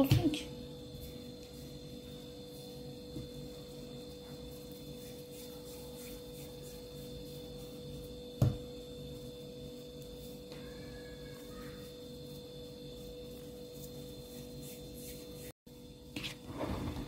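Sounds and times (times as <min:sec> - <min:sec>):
faint high whine: 0:00.0 - 0:17.0.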